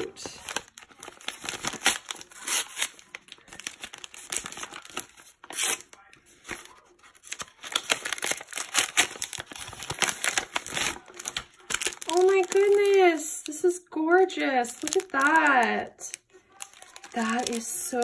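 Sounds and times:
plastic packaging crinkling: 0.0s - 13.6s, 14.6s - 18.0s
paper bag rustling: 16.5s - 18.0s.

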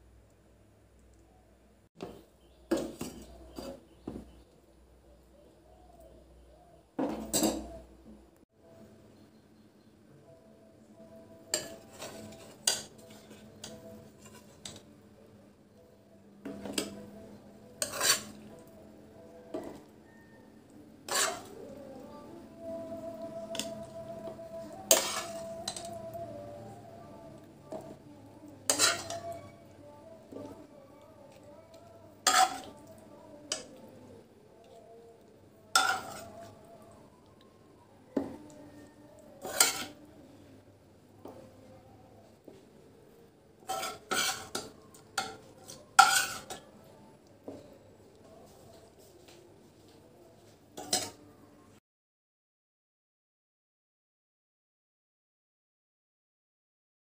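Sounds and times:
spoon scraping and knocking on pan: 2.0s - 4.4s, 7.0s - 7.8s, 11.5s - 14.8s, 16.4s - 17.0s, 17.7s - 18.6s, 21.1s - 21.5s, 24.7s - 26.0s, 28.7s - 29.4s, 32.2s - 33.8s, 35.7s - 36.5s, 39.4s - 40.0s, 43.6s - 46.7s.

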